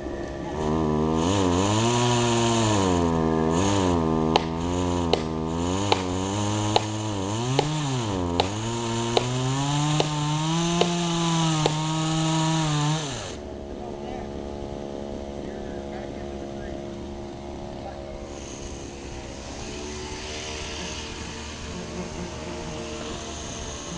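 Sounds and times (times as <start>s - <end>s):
chainsaw engine revving: 0.0s - 23.9s
sharp tick: 4.3s - 5.3s, 5.9s - 6.1s.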